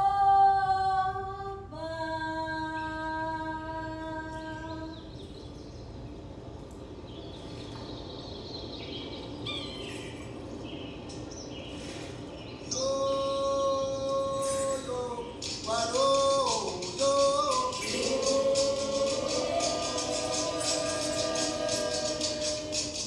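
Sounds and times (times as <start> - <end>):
woman singing a long note: 0.0 - 5.1, 17.2 - 23.0
low steady hum: 0.0 - 23.0
bird-like chirps and twitters: 7.0 - 12.8.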